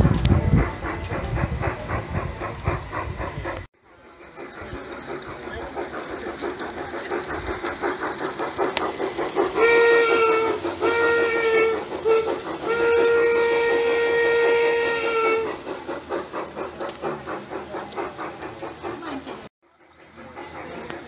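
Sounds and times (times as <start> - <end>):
model steam locomotive chuffing: 0.0 - 21.0
steam whistle blasts: 9.6 - 15.6.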